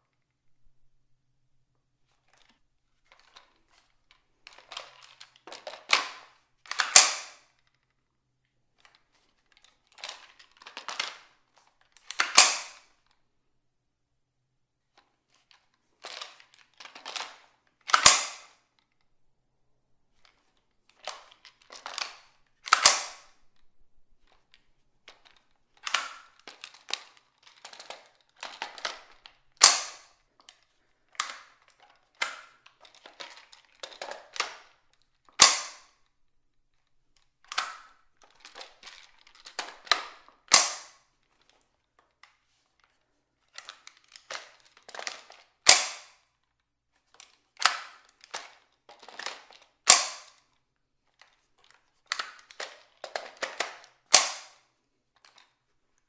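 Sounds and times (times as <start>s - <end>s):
magazine metal clicks: 5.6s - 7.5s, 12.1s - 12.9s, 17.9s - 18.6s, 21.0s - 23.4s, 25.8s - 26.4s, 27.6s - 30.2s, 35.4s - 36.0s, 37.5s - 41.0s, 43.6s - 46.2s, 49.2s - 50.4s, 52.1s - 54.6s
rifle bolt snapping closed: 5.9s - 7.4s, 12.1s - 12.8s, 17.9s - 18.6s, 21.9s - 23.4s, 29.6s - 30.1s, 35.4s - 35.9s, 39.8s - 41.0s, 45.6s - 46.2s, 49.9s - 50.4s, 53.3s - 54.6s.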